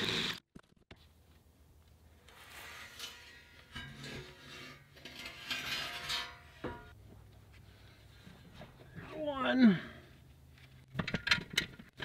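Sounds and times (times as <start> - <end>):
metal bracket scraping frame: 2.3 - 7.0.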